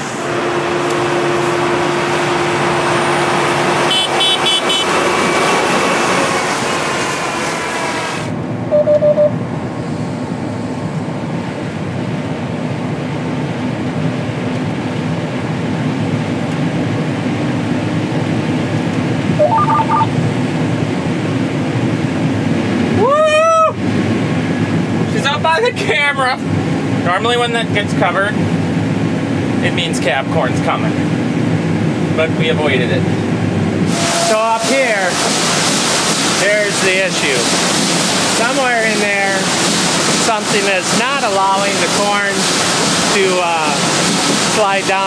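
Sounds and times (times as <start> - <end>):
combine harvester engine: 0.0 - 23.1, 23.7 - 45.0
short electronic beeps: 8.7 - 9.4, 19.4 - 20.1
loud rising whoop: 23.0 - 23.8.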